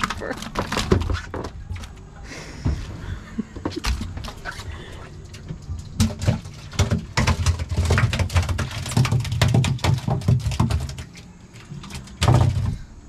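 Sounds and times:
knocks and thumps on boat deck: 5.4s - 11.1s.

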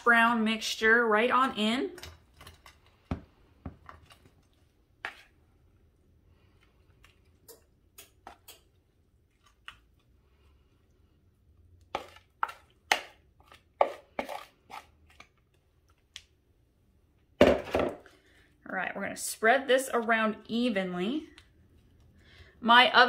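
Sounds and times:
spatula scraping a mixing bowl: 5.0s - 5.4s, 11.9s - 12.8s, 13.4s - 15.3s.

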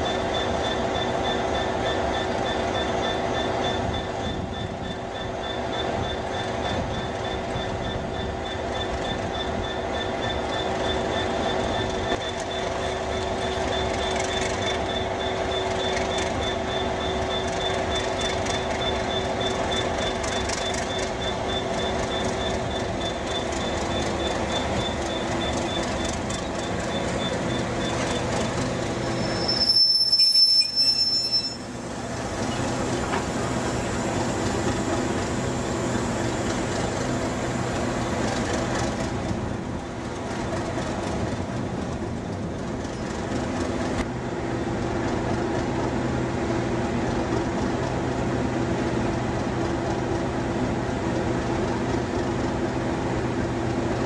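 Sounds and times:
high wheel squeal: 0.0s - 36.5s
diesel locomotive engines growling: 0.0s - 54.0s.

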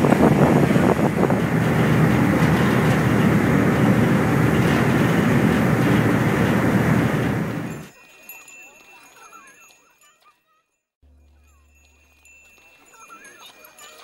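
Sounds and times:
ferry engine rumble: 0.0s - 7.9s
water rushing noise: 0.0s - 7.9s.

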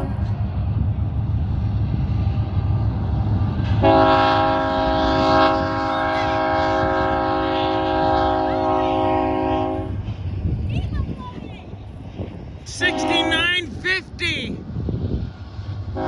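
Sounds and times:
low rumble of passing train: 0.0s - 16.0s
locomotive air horn blast: 3.8s - 10.0s, 12.9s - 13.4s.

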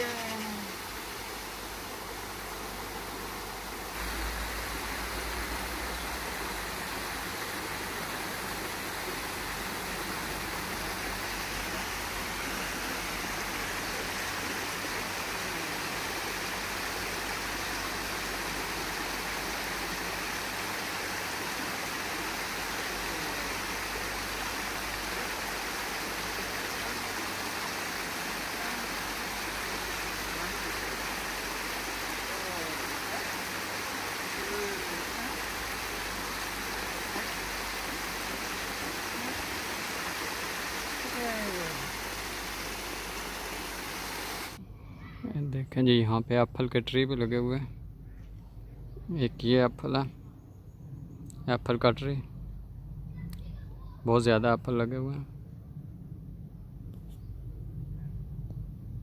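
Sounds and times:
water rushing over weir: 0.0s - 44.6s.

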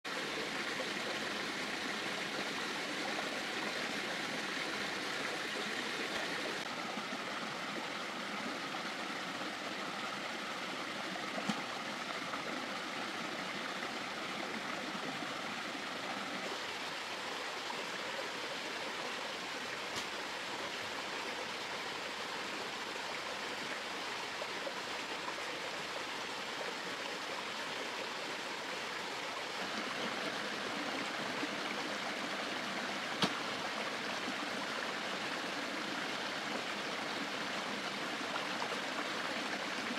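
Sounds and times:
running water rushing: 0.1s - 39.9s.

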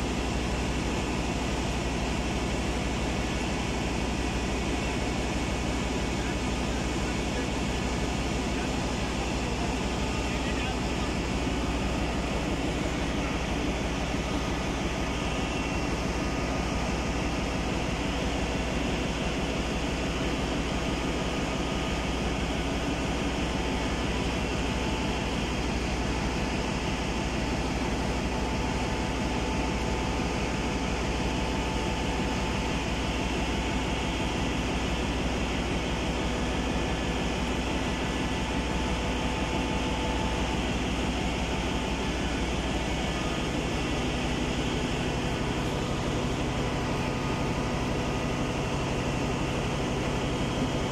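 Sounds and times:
engine-room machinery drone: 0.0s - 50.9s.

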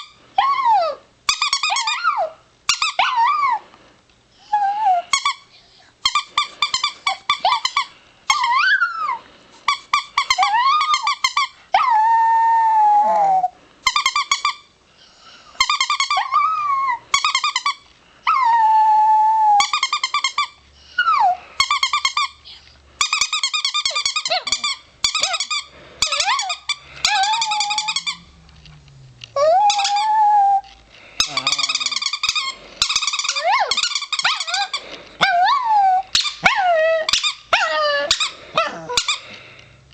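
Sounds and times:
squeaky toy squeaking: 1.3s - 3.0s, 5.1s - 9.1s, 9.7s - 11.6s, 13.8s - 14.7s, 15.6s - 17.9s, 19.6s - 20.6s, 21.6s - 22.4s, 23.0s - 28.3s, 29.4s - 39.2s
dog howling: 29.4s - 30.7s.

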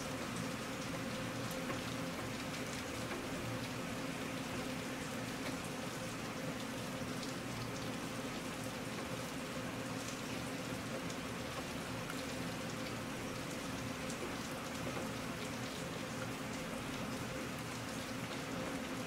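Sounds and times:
steady rain hiss: 0.0s - 19.0s
raindrops ticking: 0.3s - 3.8s, 10.0s - 18.9s.

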